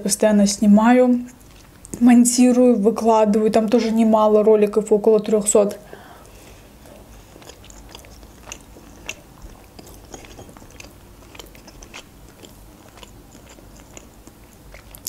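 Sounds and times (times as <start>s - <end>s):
person chewing with mouth clicks: 6.2s - 15.0s.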